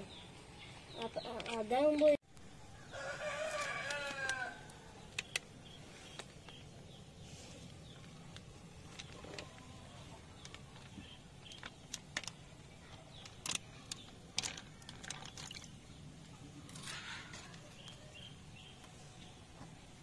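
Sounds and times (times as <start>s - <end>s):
plastic bag crackling in water: 8.1s - 16.0s
plastic bag rustle: 13.1s - 15.8s.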